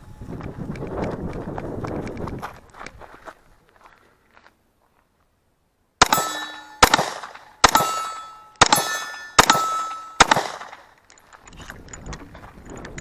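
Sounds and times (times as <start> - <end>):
pistol shots: 6.0 - 10.9
steel plate target clanging: 6.0 - 10.9.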